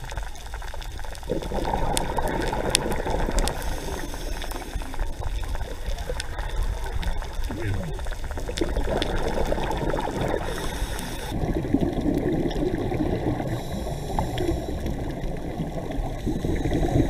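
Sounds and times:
faint clicks: 0:00.0 - 0:09.5, 0:13.5 - 0:16.8
muffled underwater rush: 0:00.0 - 0:17.0.

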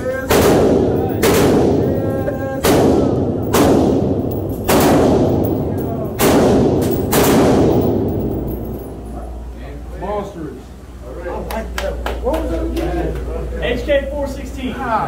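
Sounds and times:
gunshots echoing indoors: 0:00.2 - 0:09.0.

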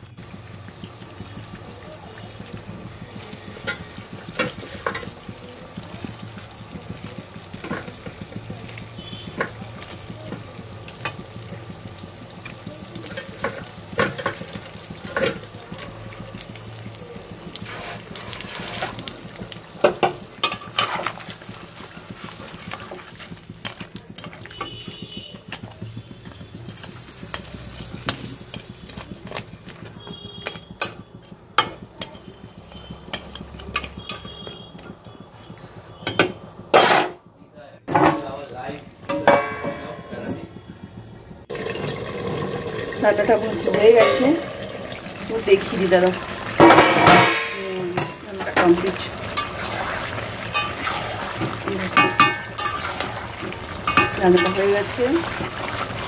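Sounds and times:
curry sizzling in a pan: 0:00.0 - 0:56.0
metal spatula knocking on pan: 0:02.3 - 0:11.3, 0:12.9 - 0:15.5, 0:19.8 - 0:21.6, 0:23.6 - 0:37.2, 0:39.1 - 0:40.5, 0:43.6 - 0:44.6, 0:46.5 - 0:49.5, 0:50.5 - 0:53.2, 0:53.8 - 0:55.1.

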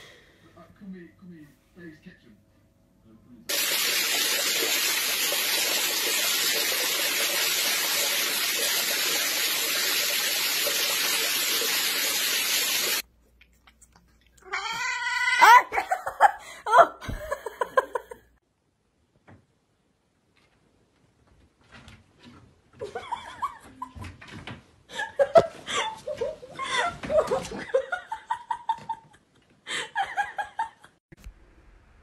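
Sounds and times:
cat meowing: 0:14.4 - 0:15.5.

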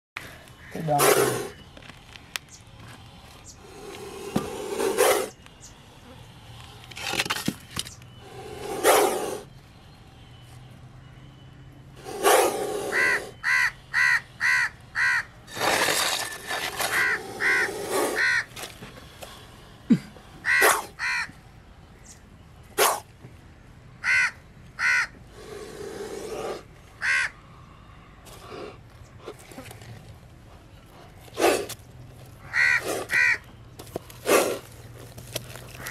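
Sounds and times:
crows cawing: 0:00.6 - 0:01.0, 0:12.7 - 0:15.3, 0:16.9 - 0:18.5, 0:20.4 - 0:21.4, 0:24.0 - 0:25.2, 0:27.0 - 0:27.4, 0:32.4 - 0:33.5.

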